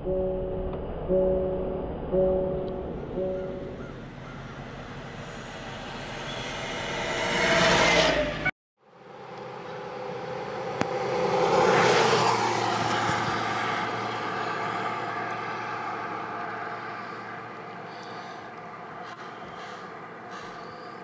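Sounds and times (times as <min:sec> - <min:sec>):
vehicle passing on road: 0:00.0 - 0:21.0.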